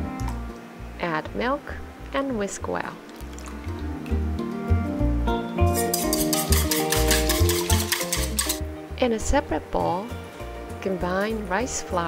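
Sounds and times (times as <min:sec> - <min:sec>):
upbeat music with bass and percussion: 0:03.6 - 0:08.7.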